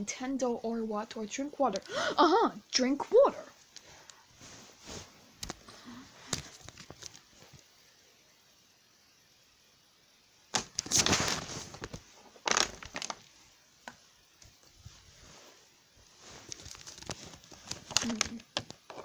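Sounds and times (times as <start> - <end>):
plastic bottle crackling: 10.5 - 13.4, 16.4 - 19.0.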